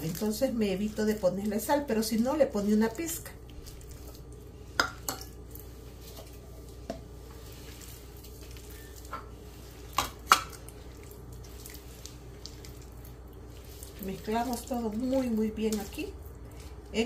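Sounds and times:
hand squishing dough: 0.0s - 17.0s
wet slaps and taps: 9.9s - 10.6s.

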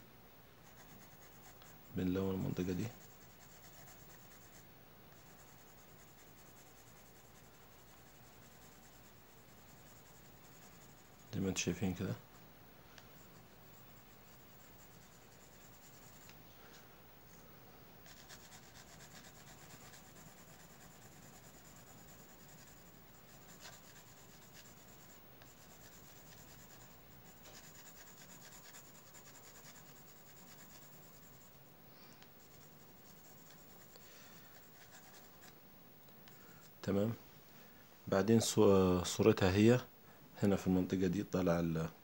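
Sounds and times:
pencil scratching on paper: 0.6s - 12.1s, 13.1s - 16.3s, 18.0s - 31.5s, 32.4s - 35.6s.

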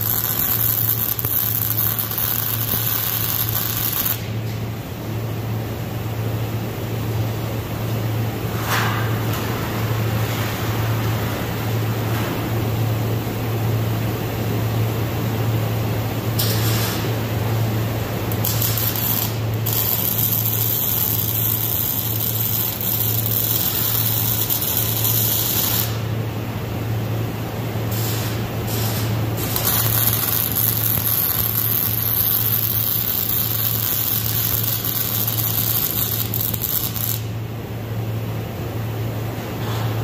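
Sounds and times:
welding arc hissing and crackling: 0.0s - 4.4s, 16.3s - 26.1s, 27.8s - 37.4s
steady low hum: 0.0s - 40.0s.

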